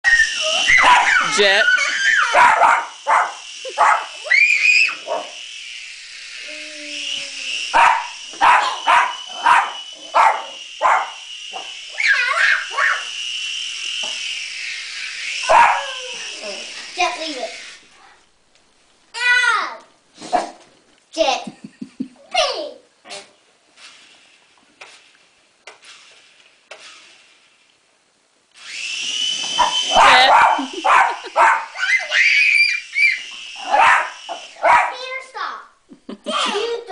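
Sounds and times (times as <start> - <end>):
toy helicopter motor whine: 0.1 - 18.2, 23.8 - 27.7, 28.6 - 35.7
dog barking excitedly: 0.7 - 1.5, 2.2 - 4.2, 7.7 - 11.2, 15.5 - 16.0, 29.6 - 31.9, 33.6 - 35.2
dog barking in sharp yaps: 33.7 - 35.0.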